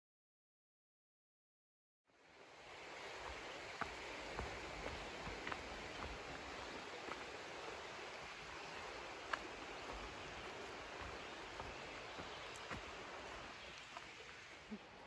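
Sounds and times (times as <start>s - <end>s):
soft forest hiss: 2.1s - 15.0s
light clicks of footsteps: 3.2s - 15.0s.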